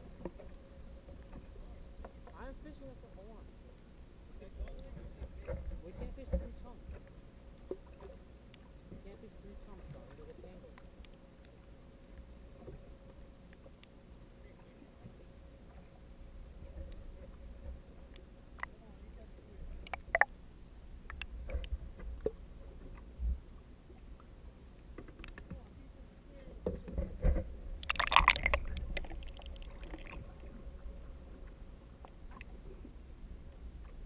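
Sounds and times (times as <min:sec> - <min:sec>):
underwater rumble: 0:00.0 - 0:34.0
underwater clicks and knocks: 0:19.8 - 0:20.3, 0:21.0 - 0:23.1, 0:24.9 - 0:25.7, 0:26.6 - 0:30.6.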